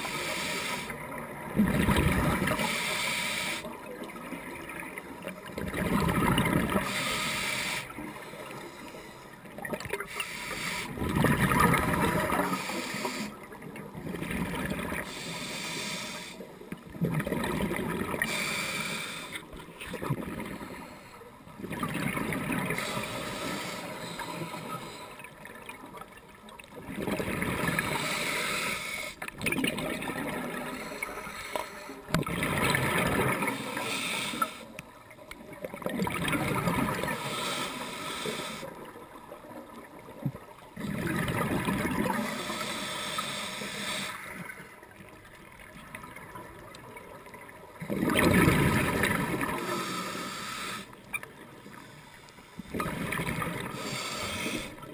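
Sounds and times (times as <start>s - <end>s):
diver breathing through regulator: 0.0s - 1.0s, 2.5s - 3.8s, 6.8s - 9.4s, 10.0s - 11.1s, 12.3s - 13.4s, 15.0s - 16.5s, 18.1s - 19.5s, 22.7s - 25.4s, 27.7s - 29.2s, 30.5s - 32.1s, 33.4s - 34.8s, 37.0s - 38.8s, 42.0s - 44.7s, 48.9s - 54.9s
exhaled air bubbles: 1.1s - 2.7s, 4.1s - 8.1s, 9.5s - 15.3s, 16.8s - 25.8s, 26.7s - 31.2s, 32.1s - 33.9s, 35.6s - 37.4s, 39.8s - 42.8s, 45.3s - 51.4s, 52.6s - 54.9s.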